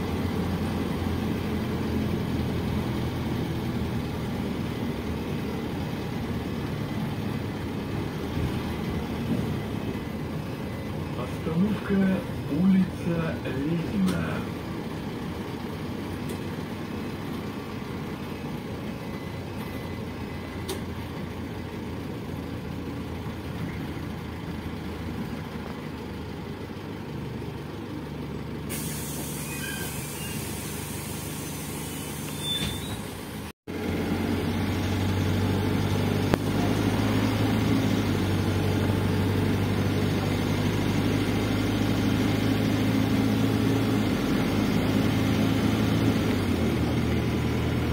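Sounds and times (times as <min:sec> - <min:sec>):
bus engine drone: 0:00.0 - 0:47.9
road noise: 0:00.0 - 0:47.9
air hiss: 0:28.7 - 0:33.2.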